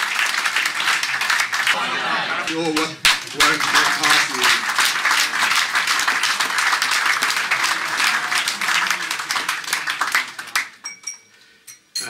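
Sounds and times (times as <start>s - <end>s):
audience applauding: 0.0s - 10.8s
murmur of voices: 1.7s - 10.8s.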